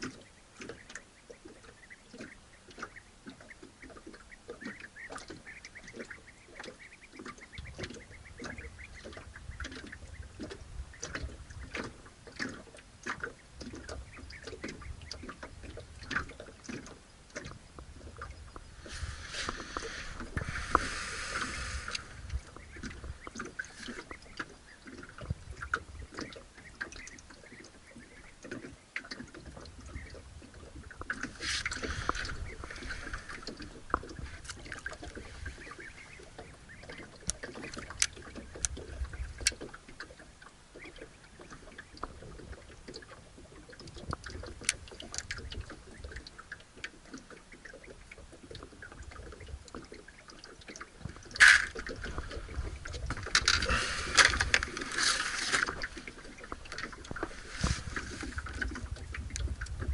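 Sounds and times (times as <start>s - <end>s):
rustling hisses: 18.8s - 22.2s, 53.6s - 56.1s, 57.2s - 58.5s
fishing gear clicks and knocks: 51.1s - 59.7s.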